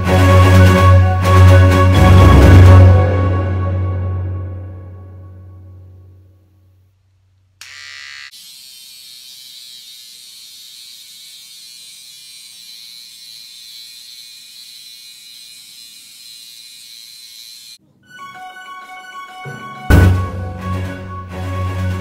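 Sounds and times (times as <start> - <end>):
electric hair clipper buzzing: 7.6 - 17.8.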